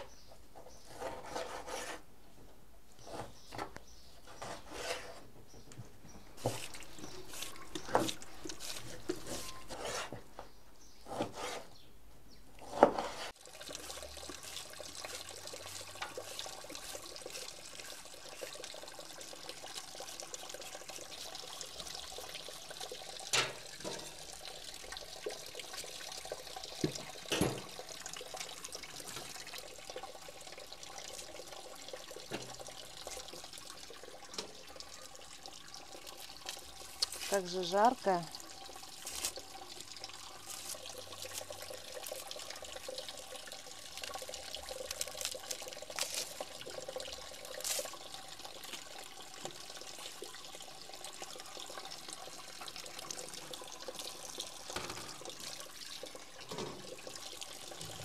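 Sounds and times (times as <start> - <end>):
knife scraping on cutting board: 0.9 - 2.0, 7.4 - 10.2, 11.1 - 11.7, 12.6 - 13.3.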